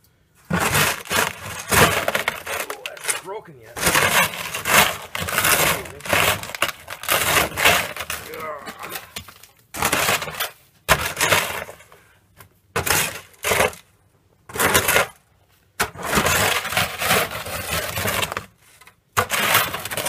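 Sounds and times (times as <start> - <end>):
snow shovel scraping snow: 0.5 - 8.5, 15.8 - 20.0.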